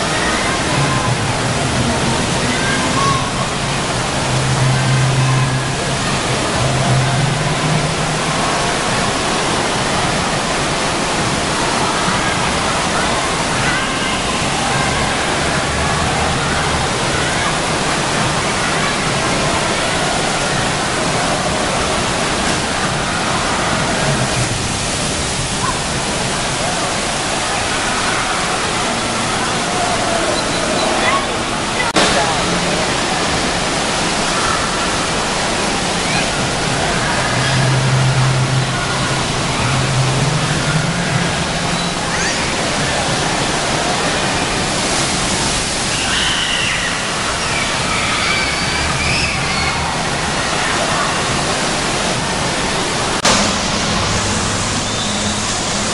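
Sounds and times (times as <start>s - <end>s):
water pouring into pool: 0.0s - 55.9s
child's high voice: 2.4s - 3.5s.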